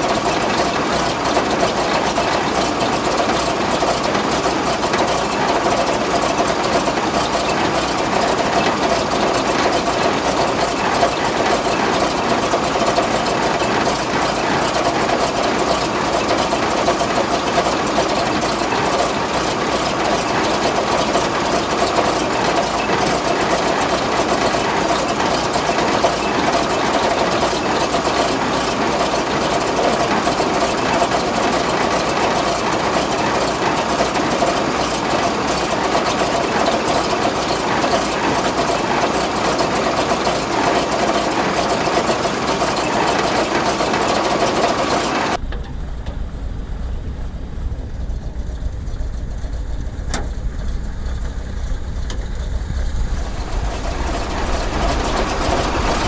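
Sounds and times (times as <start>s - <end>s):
truck engine idling: 0.0s - 56.0s
low rumble: 45.4s - 56.0s.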